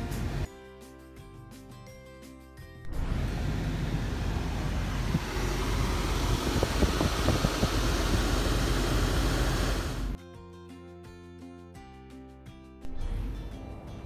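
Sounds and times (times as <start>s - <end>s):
air rushing from car vent: 2.9s - 10.2s.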